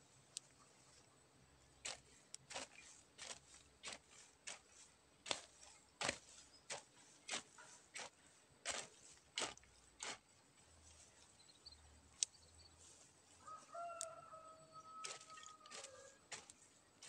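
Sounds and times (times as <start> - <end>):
hoe chopping into soil: 1.8 - 10.3, 15.0 - 16.6.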